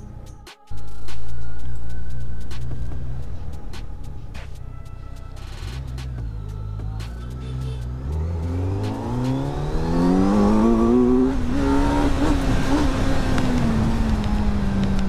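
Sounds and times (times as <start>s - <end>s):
motorcycle engine accelerating: 5.4s - 15.0s.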